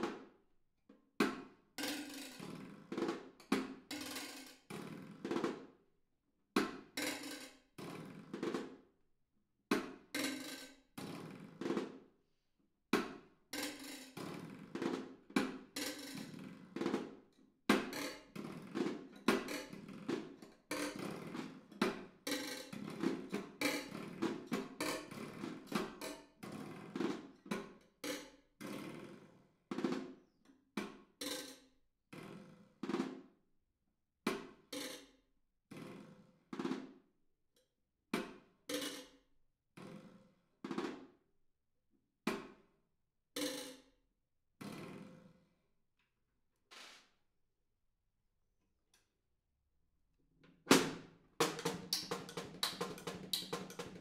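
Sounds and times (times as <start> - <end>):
snare drum strokes: 46.7 - 47.1, 50.7 - 54.0.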